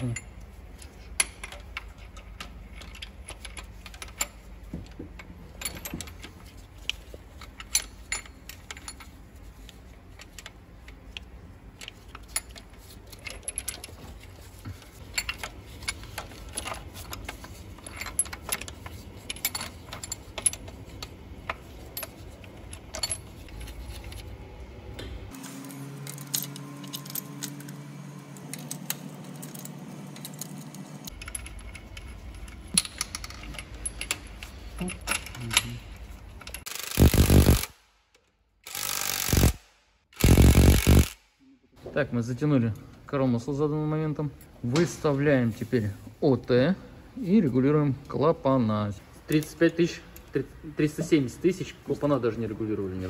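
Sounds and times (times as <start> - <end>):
metal tools clinking: 11.8 - 24.3, 26.0 - 36.7.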